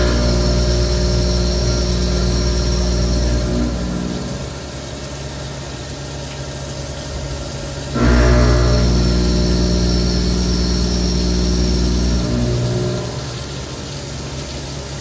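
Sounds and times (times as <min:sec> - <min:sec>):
machine tone: 0:00.0 - 0:04.6, 0:08.0 - 0:13.7
coolant splashing: 0:00.0 - 0:15.0.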